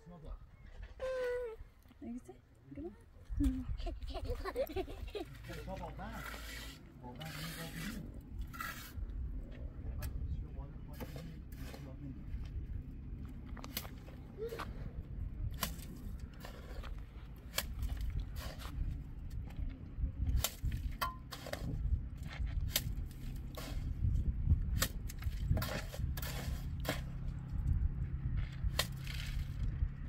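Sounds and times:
steady low rumble: 6.3s - 30.0s.

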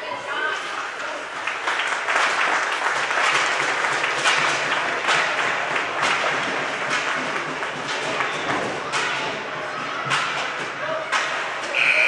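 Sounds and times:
spectators applauding: 1.4s - 8.6s.

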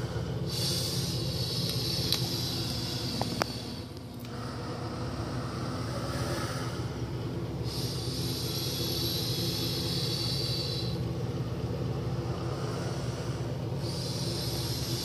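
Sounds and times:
vapor hissing from gas mask: 0.0s - 3.9s, 7.6s - 11.1s, 13.8s - 15.0s
steady low rumble: 0.0s - 15.0s.

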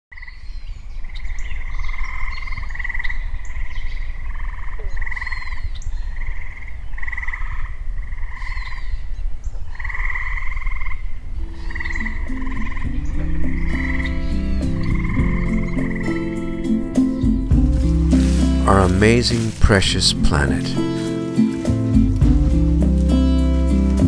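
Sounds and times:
frogs calling in pulsed trills: 1.0s - 9.0s, 9.7s - 17.5s
bird chirps: 11.4s - 17.6s
low held tones: 11.4s - 17.6s.

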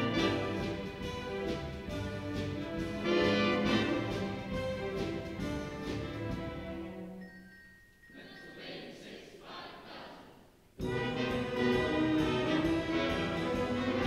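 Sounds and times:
symphony orchestra playing: 0.0s - 7.3s, 10.8s - 14.0s.

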